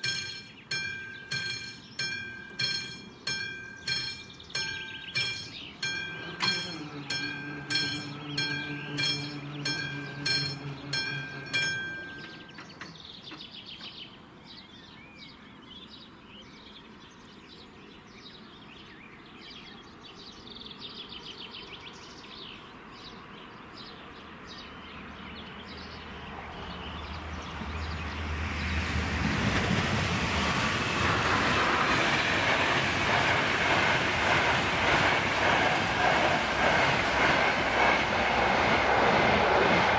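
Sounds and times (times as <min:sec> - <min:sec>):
level-crossing warning bell: 0:00.0 - 0:13.0
passenger train passing rumble: 0:00.0 - 0:14.4, 0:24.2 - 0:39.9.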